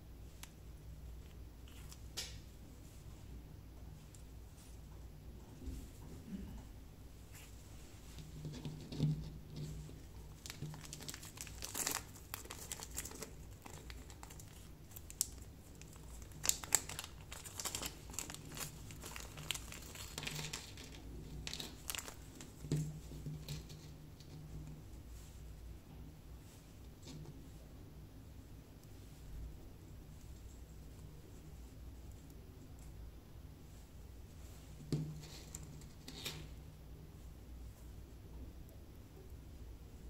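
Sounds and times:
plastic bag crinkling: 10.2 - 22.7.

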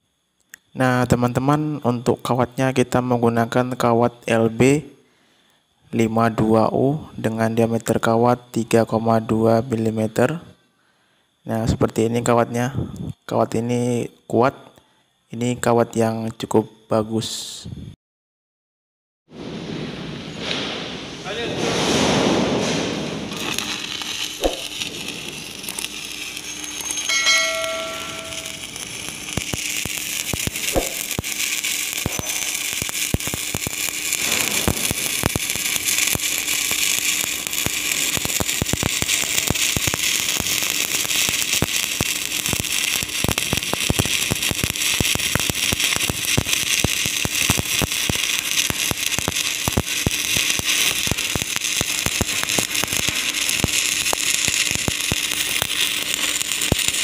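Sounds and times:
faint hum: 0.0 - 18.0, 22.6 - 57.0
welding arc crackling: 19.7 - 57.0
brief ringing tone: 26.4 - 28.8.

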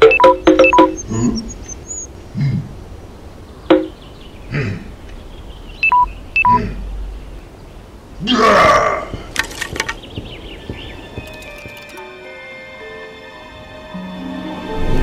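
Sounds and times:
electronic keypad beeps: 0.0 - 2.1, 5.8 - 6.6
character grunting and muttering: 8.2 - 9.3
hollow wooden knock: 8.6 - 11.9.

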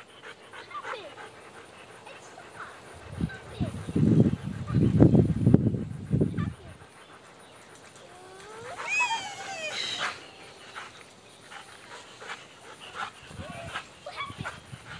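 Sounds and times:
child squealing: 8.2 - 10.2.

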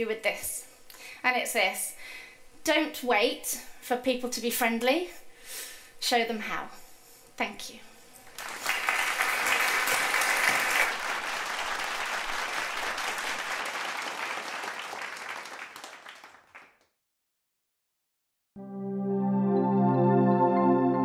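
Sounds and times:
audience applauding: 8.3 - 16.9.

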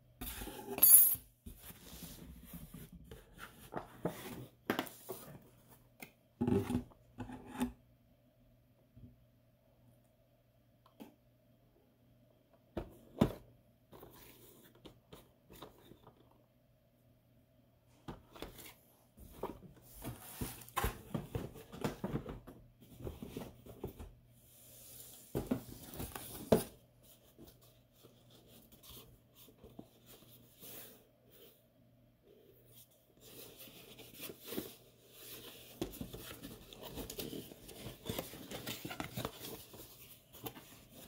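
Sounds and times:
cardboard boxes scraping and rustling: 18.4 - 22.1.

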